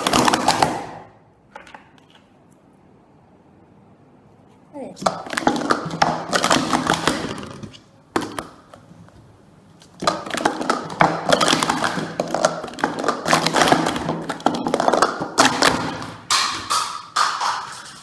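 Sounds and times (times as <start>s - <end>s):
plastic cups clacking: 0.0s - 2.4s, 5.0s - 8.9s, 9.8s - 18.0s.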